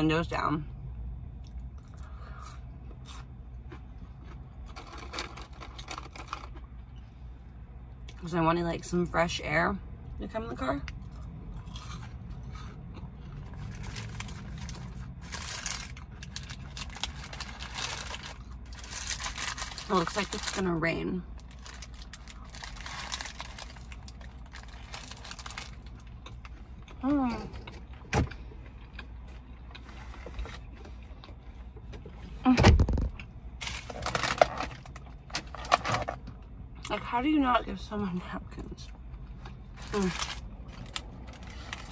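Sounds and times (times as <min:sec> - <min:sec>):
low outdoor rumble: 0:00.0 - 0:41.9
person chewing: 0:01.4 - 0:04.7, 0:11.0 - 0:13.4
paper wrapper crinkling: 0:13.7 - 0:20.6, 0:21.4 - 0:26.0.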